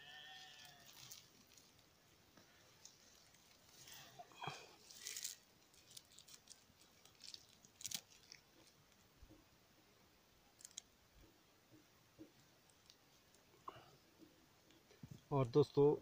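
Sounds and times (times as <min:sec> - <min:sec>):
paper and plastic crackling: 0:00.4 - 0:01.9, 0:04.8 - 0:08.8.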